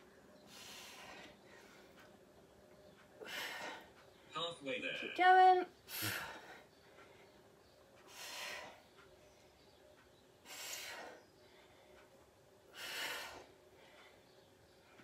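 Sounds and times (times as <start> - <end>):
woman breathing hard: 0.0 - 2.1, 3.2 - 4.3, 5.8 - 7.4, 8.0 - 9.6, 10.4 - 15.0.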